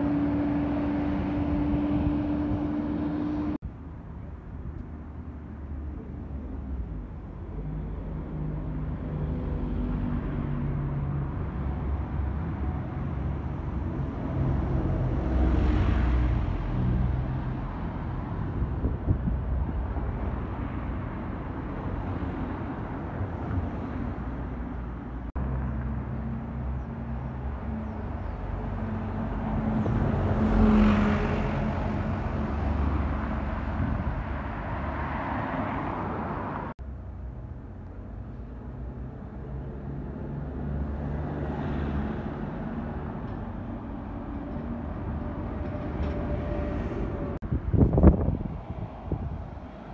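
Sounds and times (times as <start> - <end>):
close vehicle pass-by: 0.0 - 3.9, 4.6 - 49.9
buses and cars driving past: 0.0 - 49.9.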